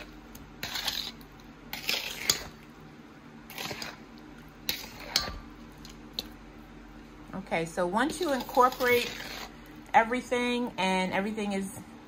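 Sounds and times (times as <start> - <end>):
spoon scraping in bowl: 0.0 - 2.6, 3.5 - 6.3, 8.1 - 9.7.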